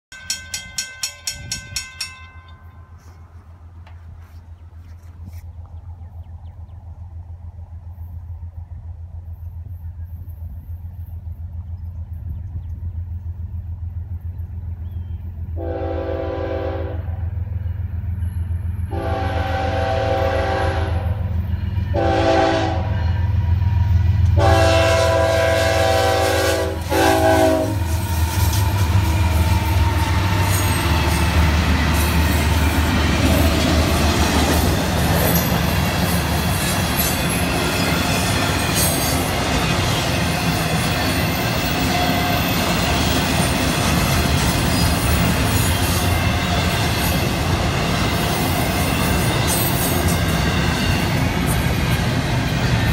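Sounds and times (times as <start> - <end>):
train wheels clattering on rails: 0.1 - 4.2, 23.8 - 52.9
locomotive engine rumble: 0.2 - 52.9
train horn: 15.6 - 17.5, 18.9 - 30.8.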